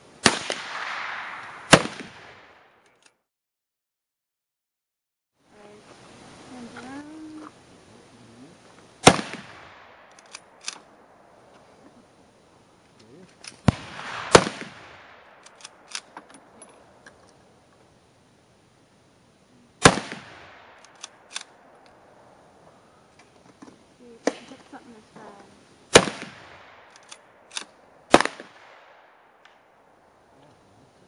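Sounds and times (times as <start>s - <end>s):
rifle shots with echo: 0.2s - 2.8s, 9.0s - 11.3s, 13.6s - 16.5s, 19.8s - 21.8s, 25.9s - 29.9s
rifle bolt clicking: 10.1s - 10.9s, 15.4s - 16.2s, 20.8s - 21.5s, 26.9s - 27.7s.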